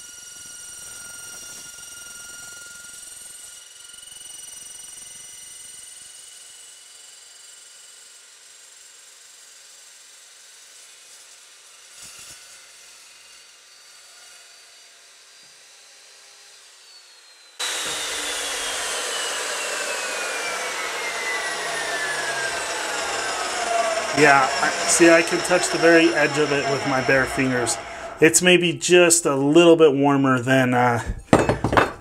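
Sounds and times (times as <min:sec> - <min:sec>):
saw blade whirring down: 0:00.0 - 0:29.7
knock: 0:31.1 - 0:32.0.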